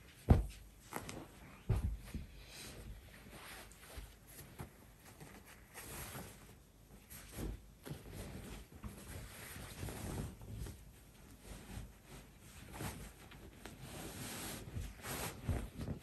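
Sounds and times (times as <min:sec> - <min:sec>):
pillowcase rustling: 0:00.0 - 0:16.0
pillow soft thumps: 0:00.1 - 0:03.3.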